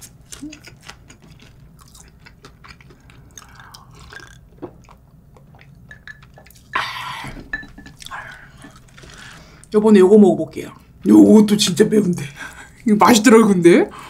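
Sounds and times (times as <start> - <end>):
person chewing and swallowing: 0.2 - 9.7
gulping a drink: 3.3 - 8.8.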